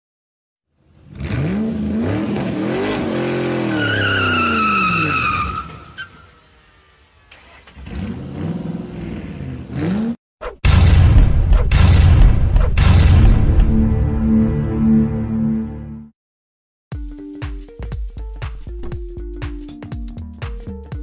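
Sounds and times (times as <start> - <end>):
tires squealing: 1.2 - 10.1.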